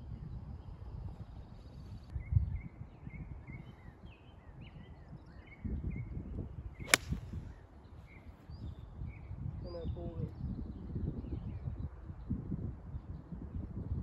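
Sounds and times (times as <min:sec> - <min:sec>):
golf club striking ball: 0:06.8 - 0:07.3.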